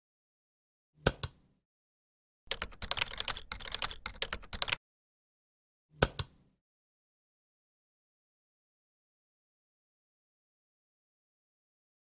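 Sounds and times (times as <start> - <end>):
rapid keyboard typing: 2.5 - 4.8.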